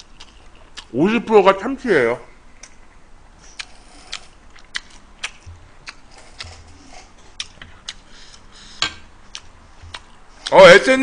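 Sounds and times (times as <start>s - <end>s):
person eating with mouth clicks: 0.0s - 0.9s, 3.4s - 10.6s.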